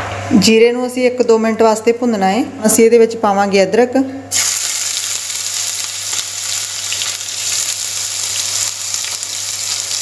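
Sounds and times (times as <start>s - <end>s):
ginger sizzling in hot oil: 4.3s - 10.0s.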